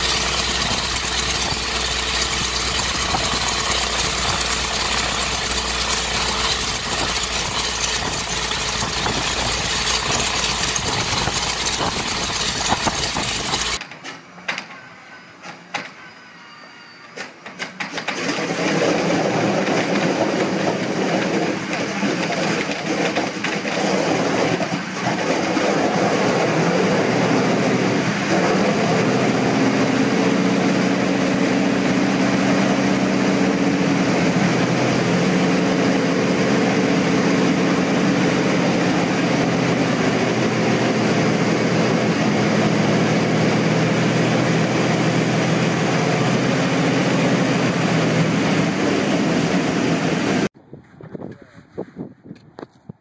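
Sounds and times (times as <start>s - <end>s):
radial aircraft engine droning: 0.0s - 13.8s.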